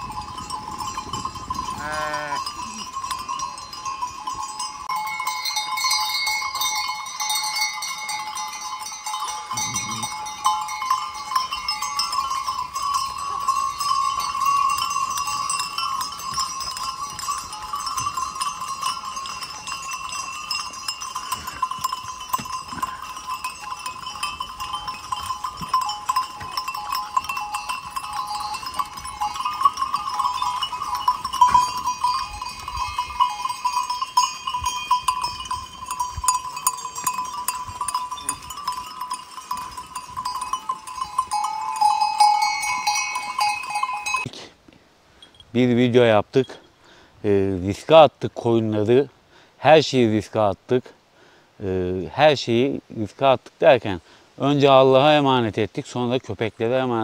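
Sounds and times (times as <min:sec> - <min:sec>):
sheep bells clanking: 0:00.0 - 0:44.4, 0:45.1 - 0:50.9, 0:51.7 - 0:57.0
sheep bleating: 0:01.8 - 0:02.8, 0:09.5 - 0:10.1.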